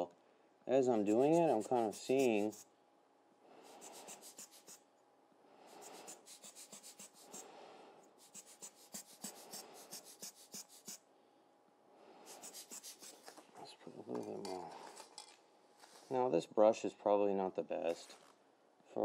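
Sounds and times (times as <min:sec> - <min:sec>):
brush scratching on paper: 0:01.0 - 0:02.6, 0:03.6 - 0:04.8, 0:05.7 - 0:07.4, 0:08.2 - 0:11.0, 0:12.3 - 0:13.4
rubber blower air puffs: 0:05.7 - 0:07.6.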